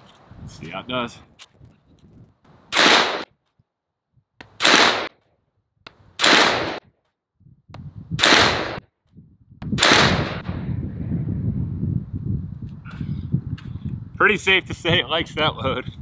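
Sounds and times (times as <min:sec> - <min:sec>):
pistol shots: 0:02.7 - 0:03.4, 0:04.5 - 0:05.2, 0:06.2 - 0:06.9, 0:08.2 - 0:08.8, 0:09.8 - 0:10.5.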